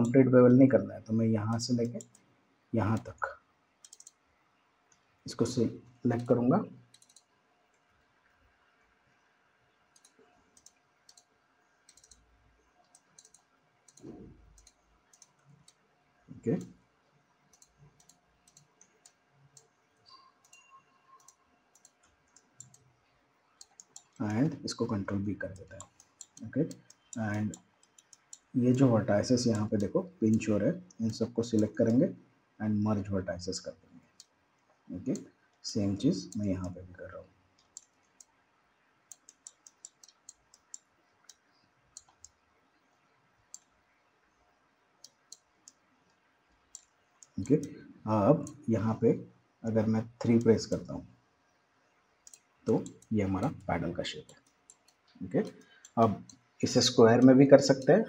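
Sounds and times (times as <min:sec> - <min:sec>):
computer mouse and keyboard clicks: 0:03.8 - 0:04.2, 0:06.1 - 0:07.9, 0:09.9 - 0:15.8, 0:17.5 - 0:23.0, 0:23.6 - 0:32.0, 0:34.0 - 0:36.8, 0:37.6 - 0:38.4, 0:39.1 - 0:42.4, 0:45.0 - 0:48.9, 0:49.8 - 0:51.0, 0:52.2 - 0:58.0.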